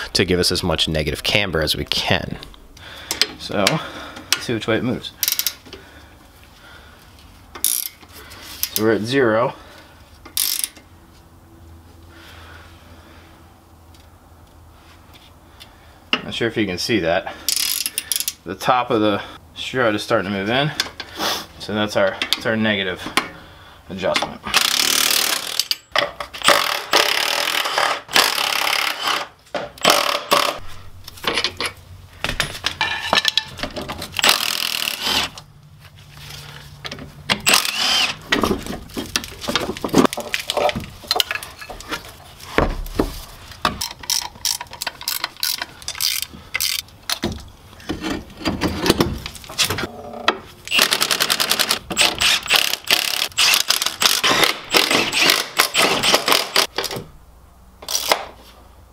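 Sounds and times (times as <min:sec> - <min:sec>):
impact wrench hammering rattle: 0:24.5 - 0:30.6, 0:34.2 - 0:35.3, 0:50.7 - 0:56.8.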